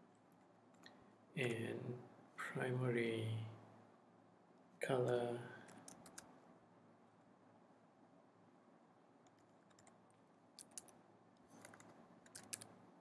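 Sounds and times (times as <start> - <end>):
faint laptop keyboard key presses: 11.6 - 12.7.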